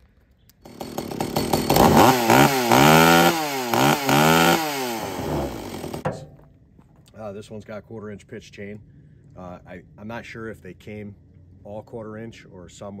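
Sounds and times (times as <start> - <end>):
chainsaw engine revving: 0.6 - 6.1.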